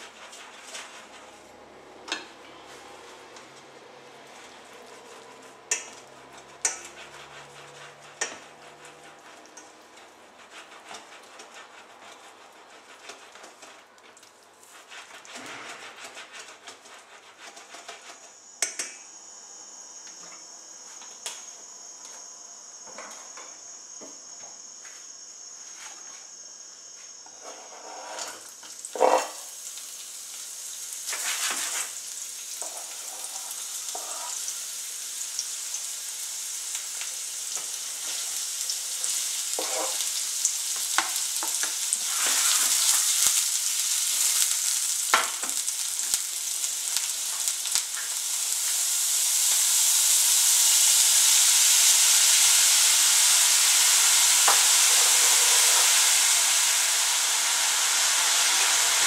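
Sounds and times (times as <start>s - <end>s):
hot oil sizzling: 0.0s - 59.0s
tongs clicking on saucepan: 5.7s - 6.0s, 6.6s - 6.9s, 18.6s - 19.0s.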